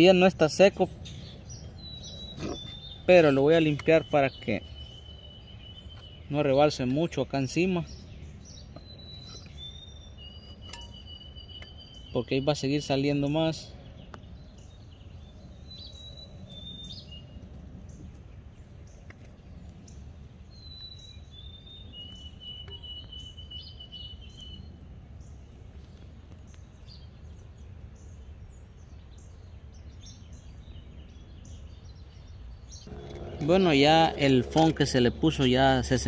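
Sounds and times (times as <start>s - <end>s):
bird calls: 0.0s - 36.0s
low rumble: 32.8s - 36.0s.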